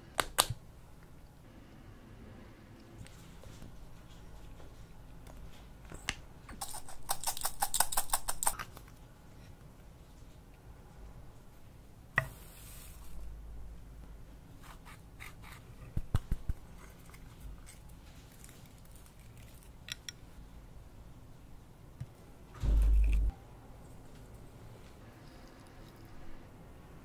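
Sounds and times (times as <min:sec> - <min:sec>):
low rumble: 0:22.6 - 0:23.3.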